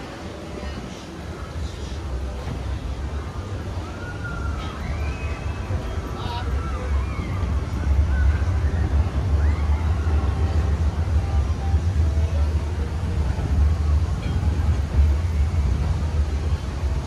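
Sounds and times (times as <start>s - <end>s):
faint voices of people: 0.0s - 17.0s
train car rumbling along track: 0.0s - 17.0s.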